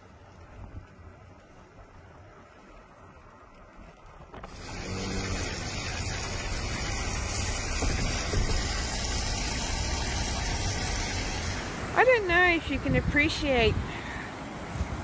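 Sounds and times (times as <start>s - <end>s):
flooded river roaring: 4.4s - 15.0s
wind buffeting microphone: 5.5s - 14.0s.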